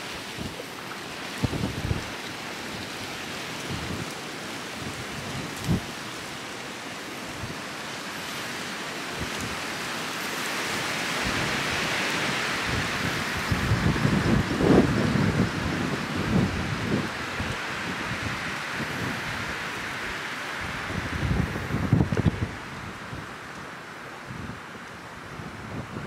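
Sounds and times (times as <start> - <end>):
small waves washing on shore: 0.0 - 25.8
wind thumping on microphone: 1.4 - 2.1, 4.8 - 5.9, 12.6 - 19.6, 20.6 - 23.2.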